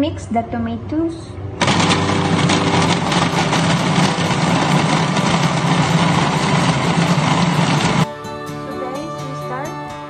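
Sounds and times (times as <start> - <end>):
food processor chopping: 1.6 - 8.0.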